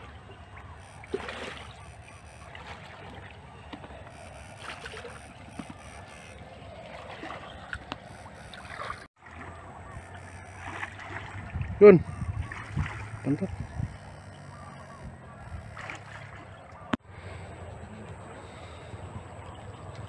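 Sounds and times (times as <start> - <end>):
sharp water splashes: 0.0 - 14.6, 15.5 - 17.0
person wading through water: 0.0 - 19.9.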